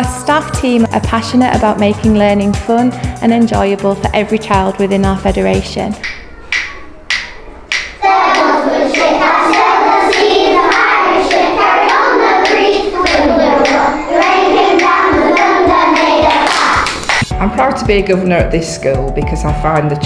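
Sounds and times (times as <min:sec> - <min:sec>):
children singing in unison: 0:06.0 - 0:17.0
hand claps: 0:06.0 - 0:17.3.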